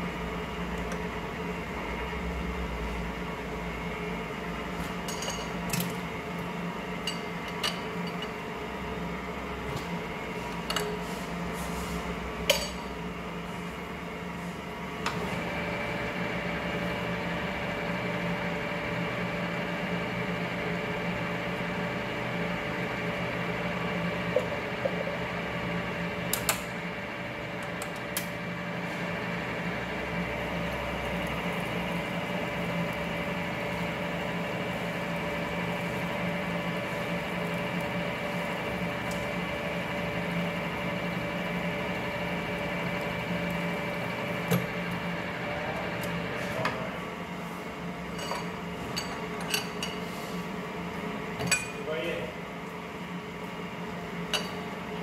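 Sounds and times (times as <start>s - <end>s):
lathe gear hum: 12.2s - 49.8s.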